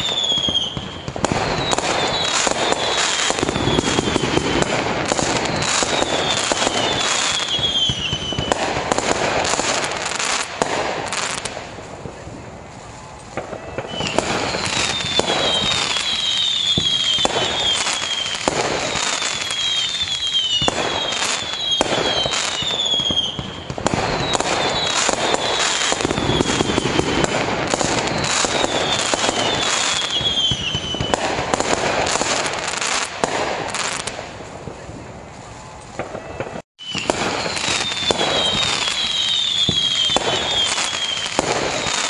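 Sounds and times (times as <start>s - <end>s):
high whistles falling in pitch: 0.0s - 8.6s, 13.4s - 31.3s, 36.0s - 42.0s
fireworks crackling: 0.0s - 42.0s
fireworks shells bursting: 13.2s - 34.6s.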